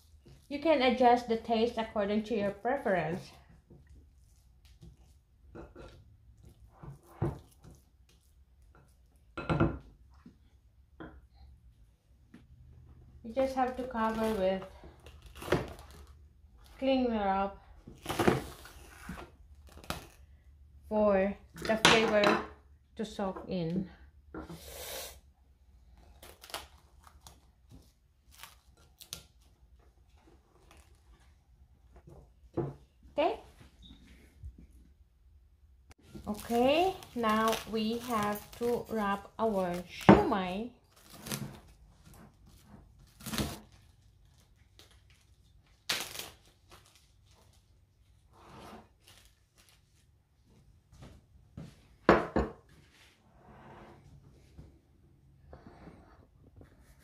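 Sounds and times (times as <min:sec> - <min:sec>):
plastic wrap rustling: 0:13.4 - 0:16.9, 0:25.8 - 0:31.6, 0:36.0 - 0:50.8.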